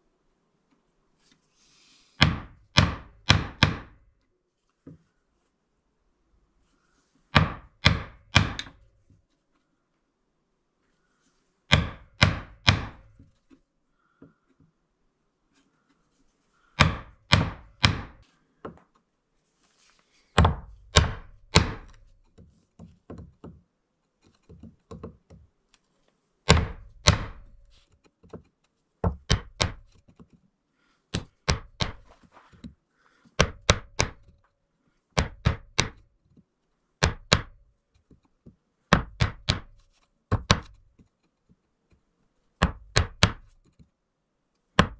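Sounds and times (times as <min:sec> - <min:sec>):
chisel striking wood: 0:02.2 - 0:04.0, 0:07.4 - 0:08.8, 0:11.7 - 0:13.3, 0:16.8 - 0:18.8, 0:20.4 - 0:23.6, 0:26.5 - 0:30.0, 0:31.1 - 0:32.1, 0:33.4 - 0:34.3, 0:35.2 - 0:36.0, 0:37.0 - 0:37.6, 0:38.9 - 0:40.9, 0:42.6 - 0:43.6.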